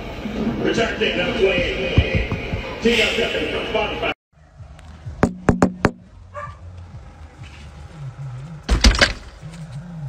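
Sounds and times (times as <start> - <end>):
dog barking: 6.3 - 6.6.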